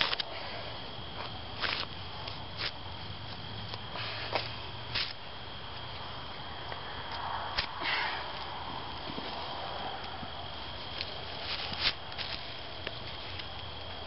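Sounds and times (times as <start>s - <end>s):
faint rustling and handling: 7.9s - 14.0s.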